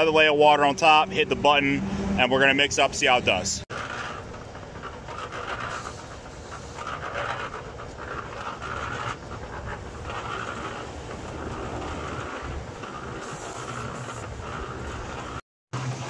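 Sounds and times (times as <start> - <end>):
concrete mixer running: 3.6 - 16.0.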